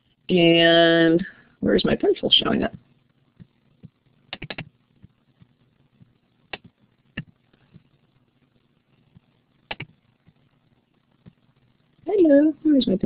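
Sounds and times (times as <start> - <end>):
faint room hiss: 0.0 - 13.0
computer mouse clicks: 4.3 - 5.1, 6.5 - 7.9, 9.1 - 10.4.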